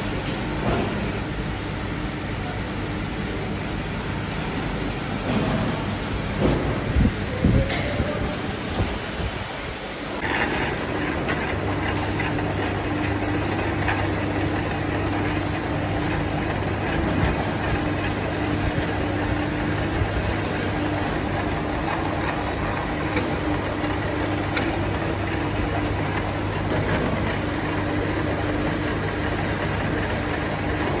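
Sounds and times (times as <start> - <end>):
drill press cutting metal: 10.2 - 31.0.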